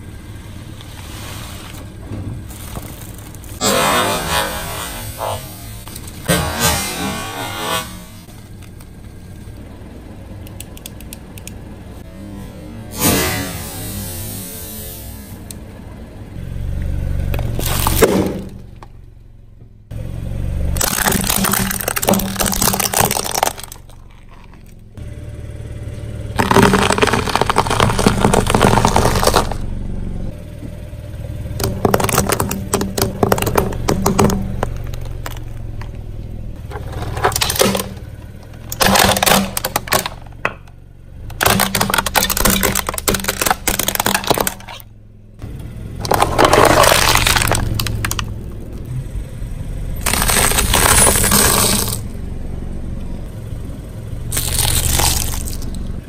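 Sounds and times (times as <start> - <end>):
car engine running low: 0.0 - 56.0
plastic toys crushed by tyre: 2.4 - 8.2, 17.3 - 18.9, 20.7 - 24.9, 26.3 - 29.7, 31.6 - 44.9, 45.9 - 48.9, 50.0 - 52.2, 54.3 - 56.0.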